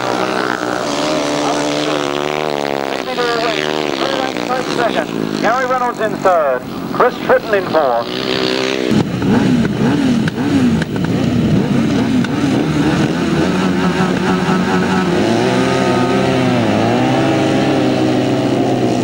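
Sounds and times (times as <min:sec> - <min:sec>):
motorcycle engines revving: 0:00.0 - 0:19.0.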